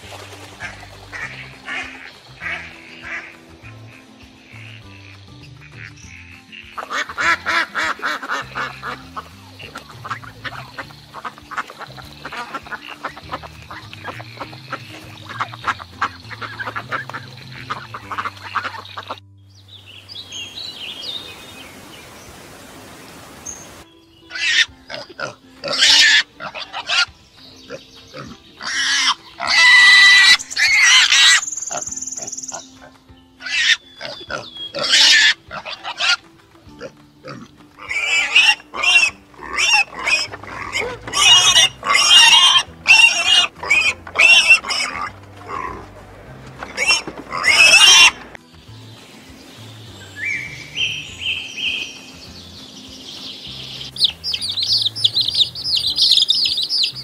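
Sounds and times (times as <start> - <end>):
ducks quacking: 0.0 - 19.2, 24.3 - 48.4
meadowlark singing: 0.6 - 22.4, 23.4 - 57.0
wild boar squealing: 24.3 - 27.1, 27.7 - 46.0, 46.6 - 48.3.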